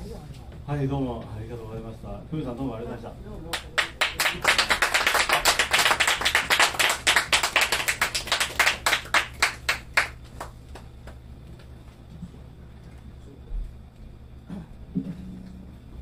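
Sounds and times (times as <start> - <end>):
audience clapping: 3.5 - 11.2.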